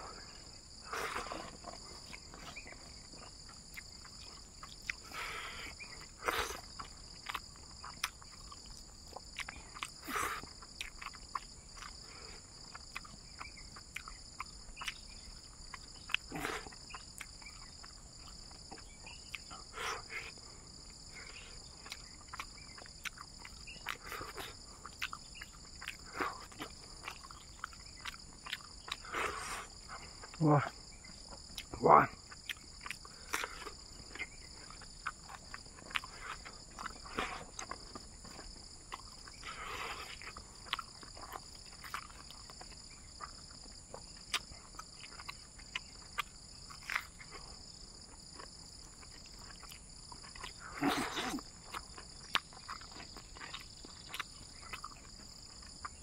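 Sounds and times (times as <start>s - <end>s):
chewing clicks: 0.9s - 56.0s
lip smacks: 21.8s - 30.4s, 32.3s - 47.5s, 48.4s - 55.2s.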